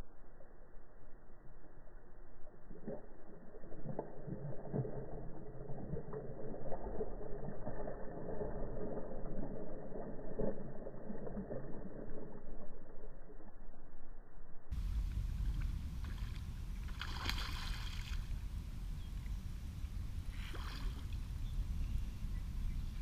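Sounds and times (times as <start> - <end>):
fish thrashing and splashing: 16.9 - 18.3.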